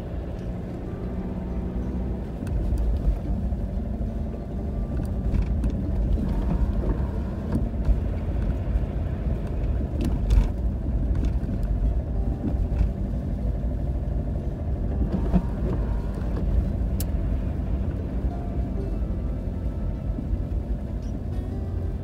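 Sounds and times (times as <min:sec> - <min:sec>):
car engine and tyres rumble: 0:00.0 - 0:22.0.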